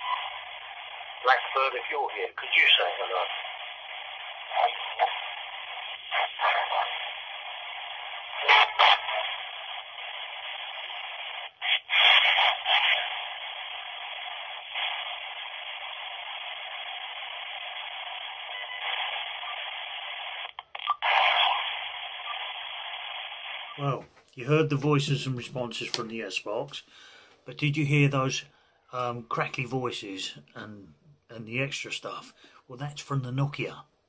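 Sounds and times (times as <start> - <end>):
radio static and hiss: 0.0 - 26.9
loud crackly bursts: 0.0 - 27.2.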